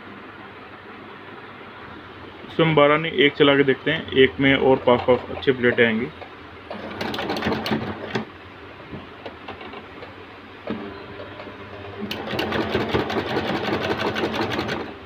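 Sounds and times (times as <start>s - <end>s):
sewing machine stitching: 6.7s - 8.3s, 12.0s - 14.9s.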